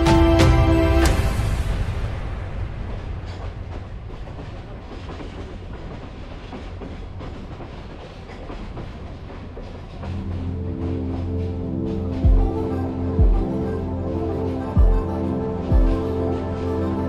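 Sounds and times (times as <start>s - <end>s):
background music: 0.0s - 5.7s, 9.2s - 17.0s
train rumble: 0.0s - 17.0s.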